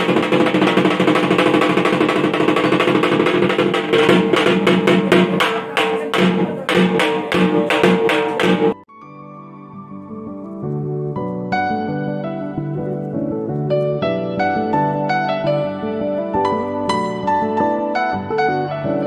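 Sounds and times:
barrel drum beaten with sticks: 0.0 - 8.8.

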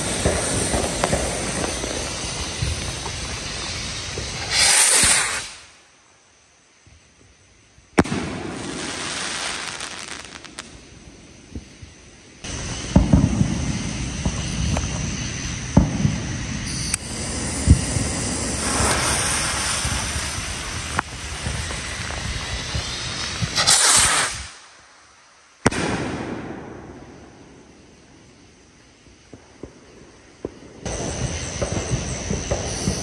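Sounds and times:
firework bang: 0.0 - 5.6, 8.0 - 10.6, 12.5 - 24.6, 25.6 - 27.7
firework pops: 0.0 - 5.6, 8.0 - 9.0, 16.8 - 24.6
firework rocket launch hiss: 0.0 - 6.0, 7.9 - 28.0, 30.4 - 33.0.

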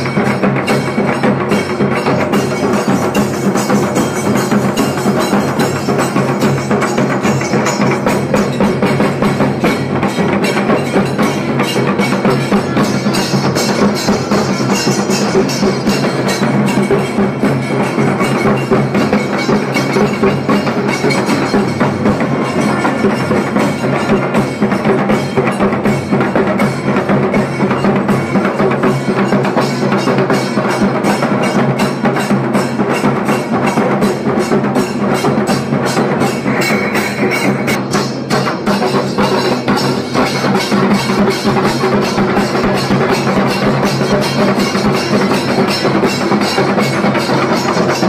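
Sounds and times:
drums beaten fast: 0.0 - 48.0.

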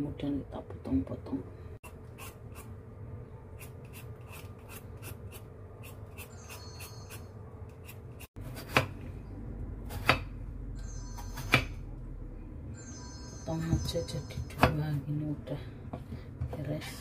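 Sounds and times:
vegetable peeler scraping skin: 3.6 - 6.3.

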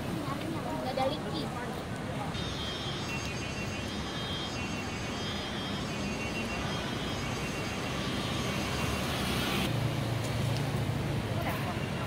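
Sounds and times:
passing vehicles: 0.0 - 12.0.

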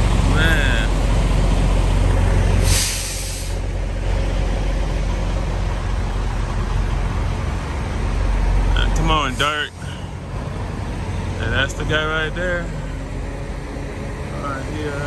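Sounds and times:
truck diesel engine idling: 0.0 - 15.0
air brakes hissing: 2.6 - 3.8, 9.4 - 10.2.

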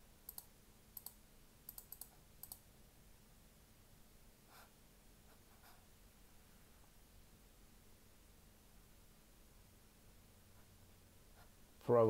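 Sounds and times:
computer mouse clicking: 0.3 - 2.6.

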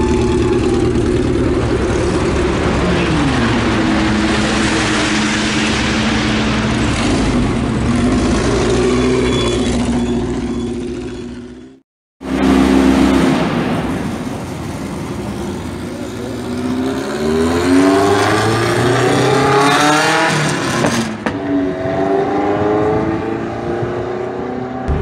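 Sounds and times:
road and wind noise: 0.0 - 25.0
car engine accelerating: 12.2 - 25.0.

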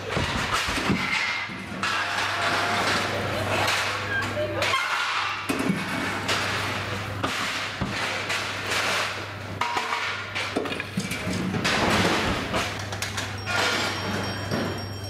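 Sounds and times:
metal parts knocking and clanking: 7.3 - 15.0.

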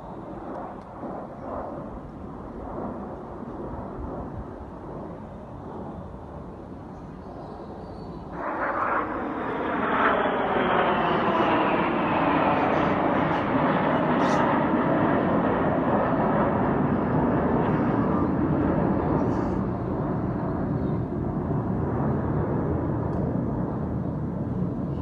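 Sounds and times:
jets flying past: 8.2 - 24.9.

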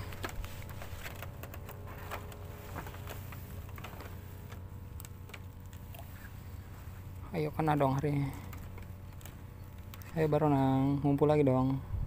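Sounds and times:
low steady hum: 0.0 - 12.0
light clicks and ticks: 7.1 - 11.3.

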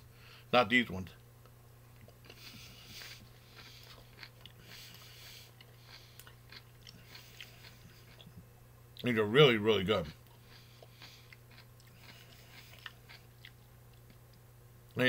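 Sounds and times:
person chewing crunchy pickle: 1.9 - 9.1, 10.0 - 14.4.

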